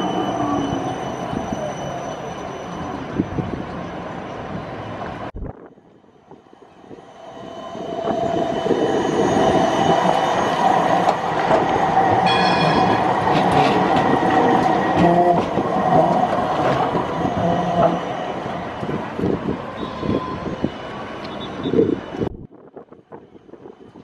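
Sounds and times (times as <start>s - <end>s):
tram rumbling: 0.0s - 24.0s
wheels squealing on rails: 0.0s - 24.0s
wheels clacking over track joints: 10.1s - 18.0s.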